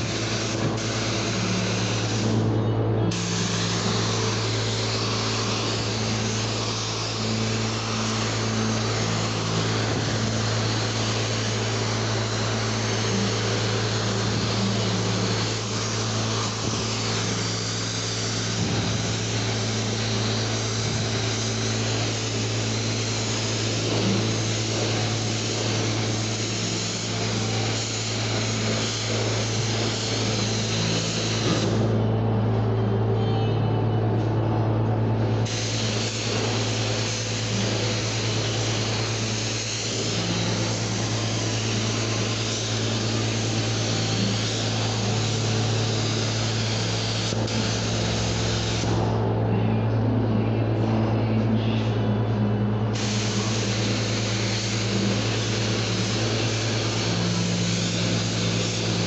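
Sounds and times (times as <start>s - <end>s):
paint spray gun hissing: 0.0s - 32.0s, 35.3s - 49.2s, 52.9s - 59.0s
steady low hum: 0.0s - 59.0s.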